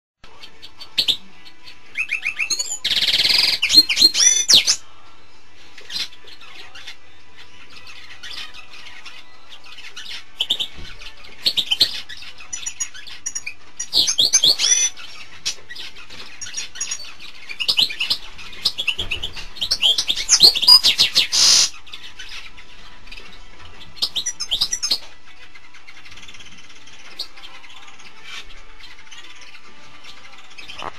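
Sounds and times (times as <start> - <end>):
bird twittering: 11.4 - 22.5, 24.0 - 29.6, 30.2 - 30.9.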